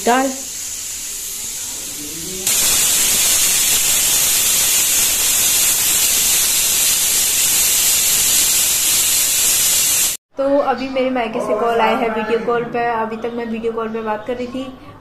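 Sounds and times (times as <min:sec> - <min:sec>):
pressure cooker steam hiss: 0:00.0 - 0:10.2.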